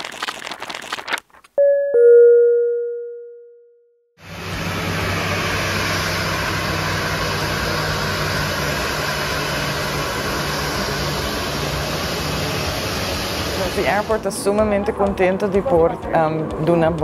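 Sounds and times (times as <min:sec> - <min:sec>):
jet engines running: 0:04.2 - 0:15.4.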